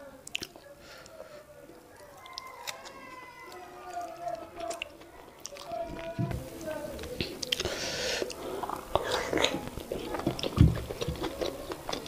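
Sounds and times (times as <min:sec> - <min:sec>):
wet mouth clicks and chewing: 0:00.2 - 0:00.7, 0:02.0 - 0:05.7, 0:07.1 - 0:12.0.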